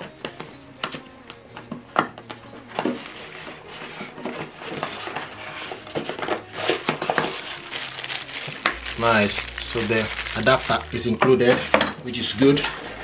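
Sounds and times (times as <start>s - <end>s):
plastic wrapping crinkling: 2.9s - 11.8s.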